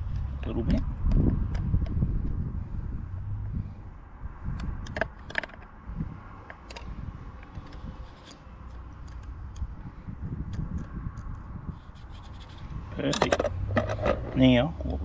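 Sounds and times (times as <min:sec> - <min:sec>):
small metallic clicks and scrapes: 0:04.5 - 0:05.8, 0:06.4 - 0:09.7, 0:10.5 - 0:15.0.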